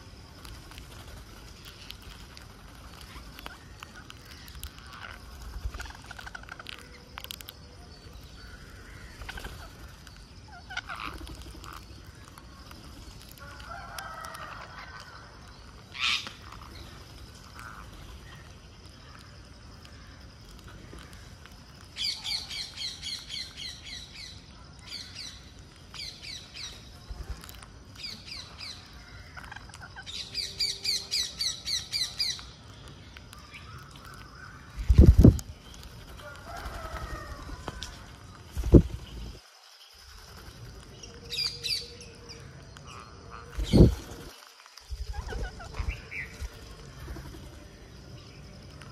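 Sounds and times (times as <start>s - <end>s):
parakeets calling: 8.4s - 12.2s.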